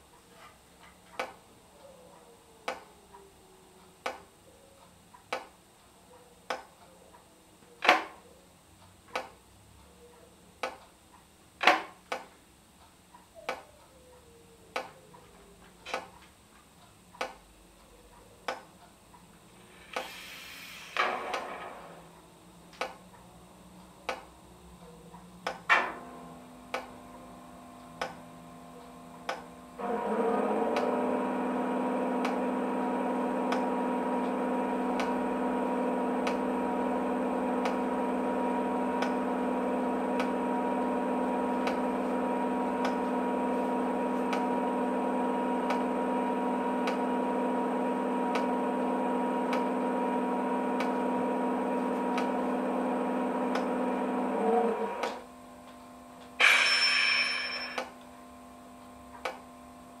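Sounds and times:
steady multi-tone electrical hum: 0:00.0 - 1:00.0.

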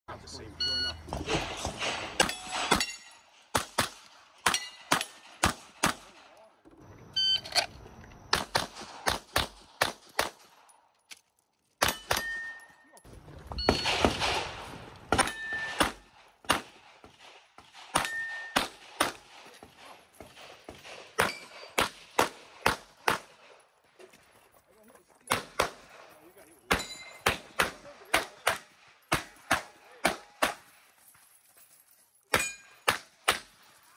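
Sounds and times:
pistol shots: 0:01.2 - 0:06.4, 0:08.3 - 0:10.7, 0:11.8 - 0:12.6, 0:13.7 - 0:23.6, 0:25.3 - 0:26.0, 0:26.7 - 0:30.7, 0:32.3 - 0:33.6
metallic rings of steel targets: 0:01.7 - 0:03.5, 0:04.4 - 0:05.4, 0:11.8 - 0:14.3, 0:15.2 - 0:16.2, 0:17.9 - 0:18.8, 0:21.2 - 0:21.8, 0:26.6 - 0:27.5, 0:32.3 - 0:32.9.

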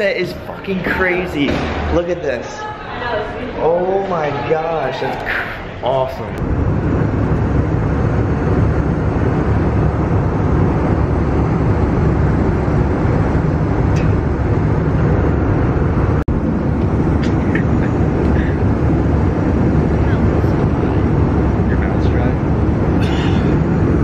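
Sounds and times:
airliner cabin engine hum: 0:06.4 - 0:24.0.

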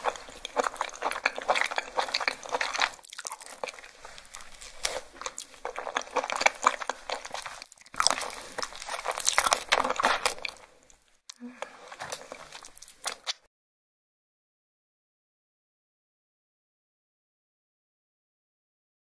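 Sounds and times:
wet chewing and sucking: 0:00.0 - 0:13.5.

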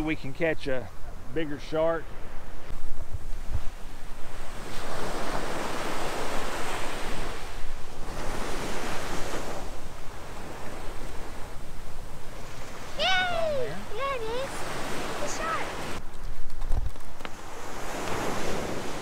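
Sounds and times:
surf washing up a beach: 0:03.3 - 0:16.1, 0:17.2 - 0:19.0.

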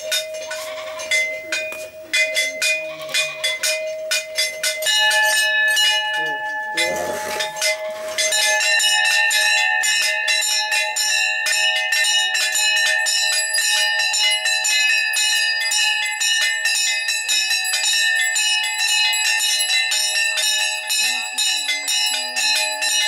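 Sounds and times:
bell ringing rapidly: 0:00.0 - 0:23.0.

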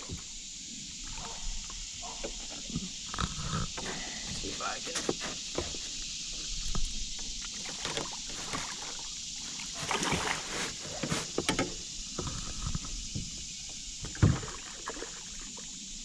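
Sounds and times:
fish thrashing and splashing: 0:06.4 - 0:11.3
knocks against canoe hull: 0:09.9 - 0:12.4, 0:14.0 - 0:14.6.

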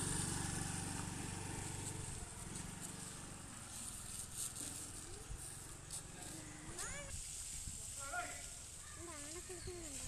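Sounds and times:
scooter engine idling quietly: 0:00.0 - 0:07.1
outdoor ambient hiss: 0:00.0 - 0:10.0.

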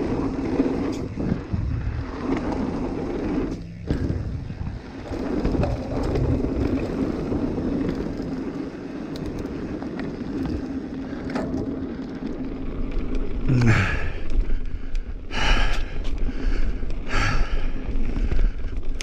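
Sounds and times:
wind buffeting microphone: 0:00.0 - 0:10.8
bike rattles and clicks: 0:00.0 - 0:19.0
bike tyres rumbling over dirt: 0:00.0 - 0:19.0.

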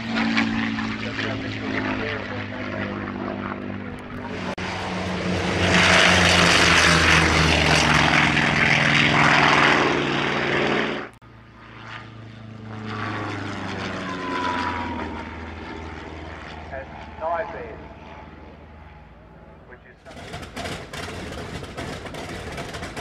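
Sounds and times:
light aircraft climbing away: 0:00.0 - 0:23.0
propeller engine running: 0:00.0 - 0:23.0.

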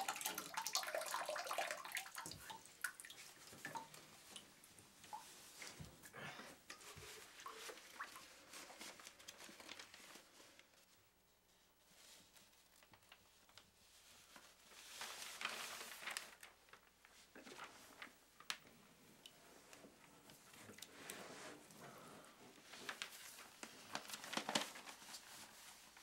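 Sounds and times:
soft crinkles and clicks: 0:06.7 - 0:11.0, 0:11.9 - 0:22.0, 0:22.6 - 0:26.0
newspaper pages rustling: 0:07.2 - 0:11.0, 0:11.9 - 0:18.6, 0:22.6 - 0:26.0.

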